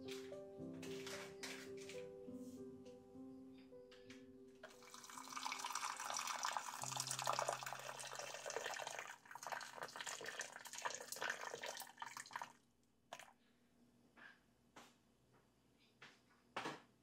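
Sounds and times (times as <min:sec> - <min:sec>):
tap water running into sink: 0:04.6 - 0:13.3.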